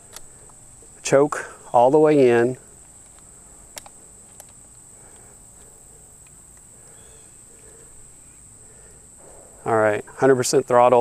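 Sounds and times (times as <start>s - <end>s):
insects droning: 0.0s - 11.0s
short clicks: 2.8s - 6.7s.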